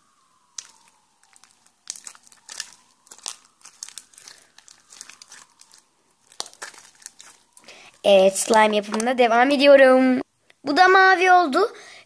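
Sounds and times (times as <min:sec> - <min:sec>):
slime squeezed by hand: 0:00.3 - 0:09.1.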